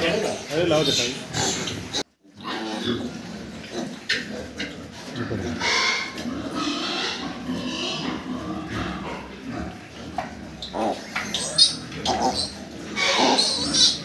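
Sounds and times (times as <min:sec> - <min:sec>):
piglet squealing: 0:10.7 - 0:14.0.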